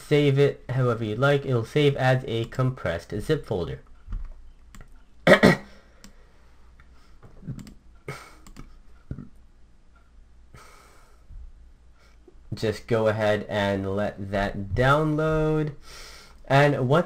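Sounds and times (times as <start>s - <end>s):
computer mouse clicks: 3.9s - 5.1s, 7.5s - 7.8s, 8.4s - 9.2s.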